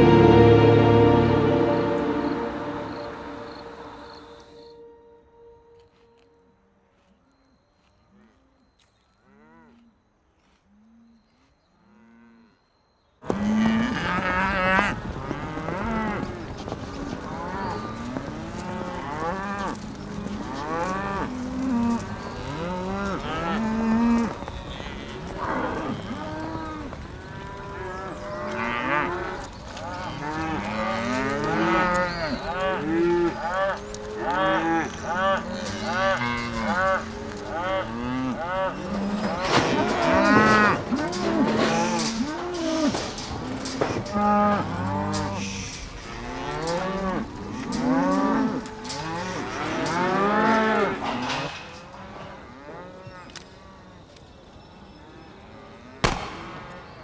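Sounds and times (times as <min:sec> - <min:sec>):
cattle lowing: 0:13.4 - 0:53.4.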